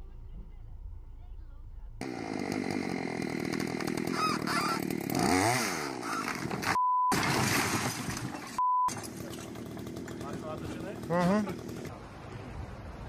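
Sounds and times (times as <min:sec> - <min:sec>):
chainsaw cutting into wall: 0:02.0 - 0:11.9.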